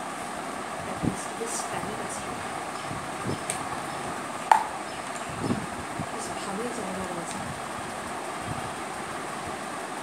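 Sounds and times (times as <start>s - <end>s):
fan-like background hum: 0.0s - 10.0s.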